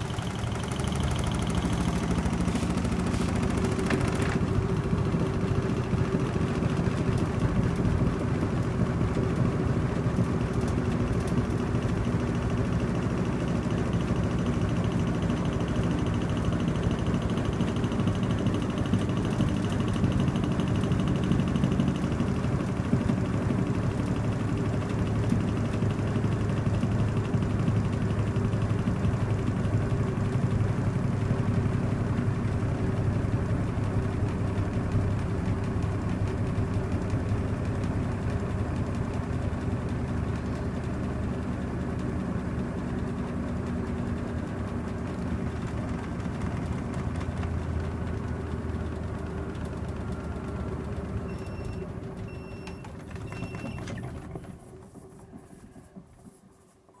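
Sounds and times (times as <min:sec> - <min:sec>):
washing machine motor hum: 0:00.0 - 0:28.8
short beeps: 0:51.3 - 0:53.8.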